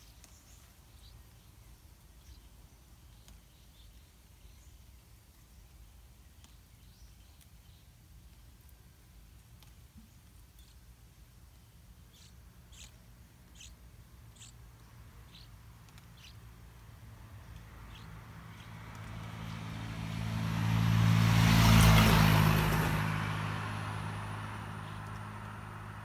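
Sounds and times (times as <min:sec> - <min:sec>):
vehicle passing by: 0:16.1 - 0:26.0.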